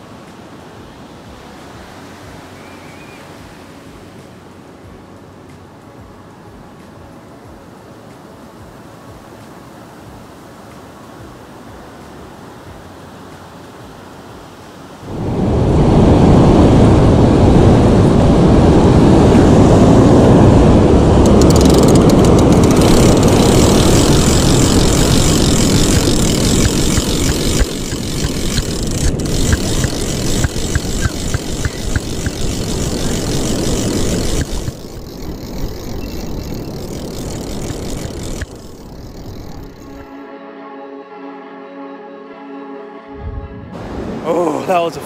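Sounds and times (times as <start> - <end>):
wind on microphone: 15.0 - 40.1, 43.1 - 44.2
fishing reel clicking: 21.2 - 40.1
surf: 42.8 - 45.0.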